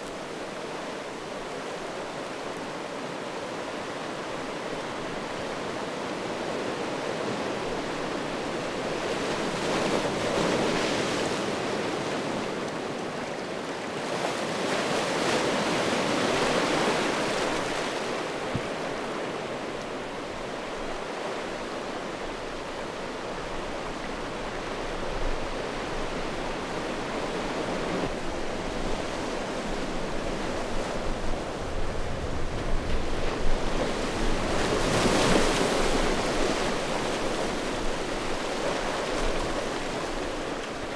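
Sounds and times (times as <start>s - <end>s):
waves washing over cobble beach: 0.0s - 40.9s.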